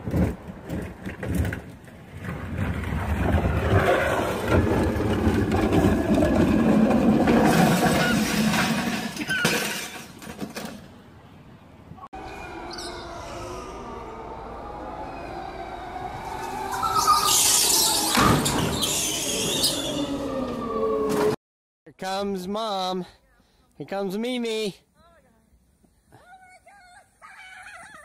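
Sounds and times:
cart crashing and clattering: 0.0s - 11.0s
cart wheels rolling on asphalt: 0.0s - 11.0s.

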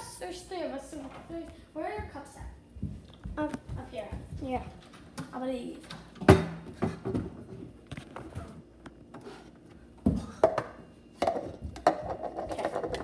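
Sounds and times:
plastic cups clacking: 10.4s - 13.0s.

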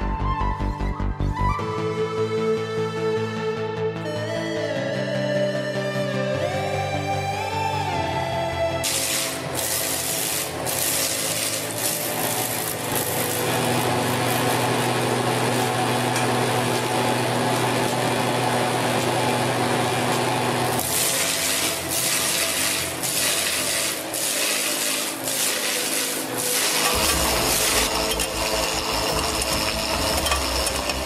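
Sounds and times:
motor hum: 8.6s - 31.0s
lathe cutter shaving wood: 8.8s - 31.0s.

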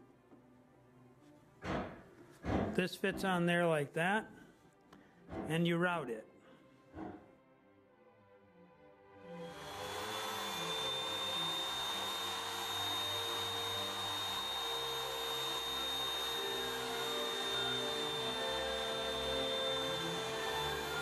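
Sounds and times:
router high whine: 9.3s - 21.0s.

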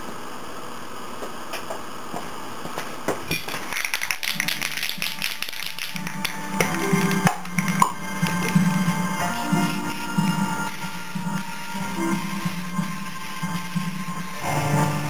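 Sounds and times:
spray can mixing ball rattling: 3.3s - 14.5s
background music: 4.2s - 15.0s.

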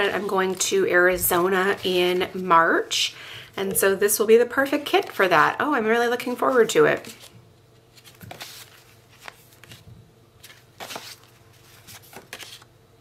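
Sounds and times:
paper cards flipped by hand: 7.9s - 12.7s.

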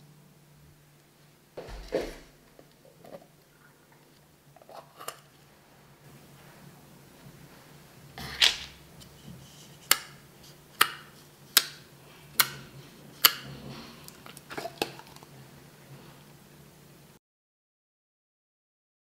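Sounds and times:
plastic lid crackle: 8.2s - 8.8s, 14.1s - 15.3s.

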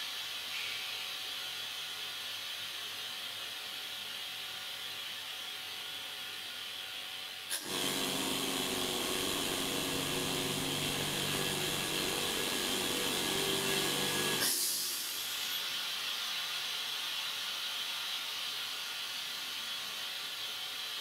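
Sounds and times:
air compressor running: 7.5s - 16.4s
air hissing: 7.5s - 16.4s.

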